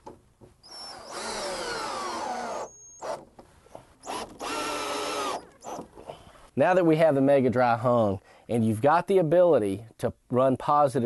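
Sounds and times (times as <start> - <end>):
cordless drill driving screws into wood: 0.6 - 5.9.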